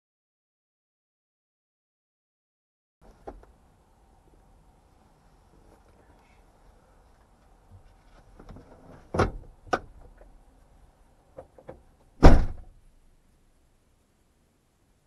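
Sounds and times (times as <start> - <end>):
car door shutting: 8.4 - 9.9, 11.6 - 12.7.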